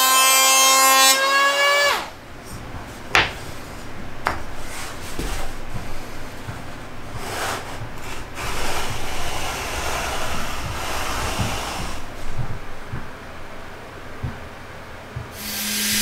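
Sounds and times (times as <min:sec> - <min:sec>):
wooden blocks scraping on wood: 0:02.5 - 0:12.4.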